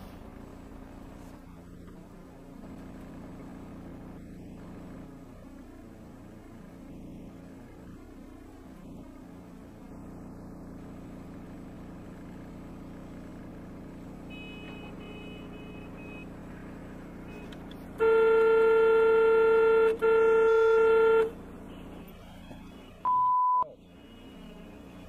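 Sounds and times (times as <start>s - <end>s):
vehicle road and engine hum: 0.0s - 25.0s
vehicle horn blasts: 14.3s - 16.3s, 17.3s - 21.4s.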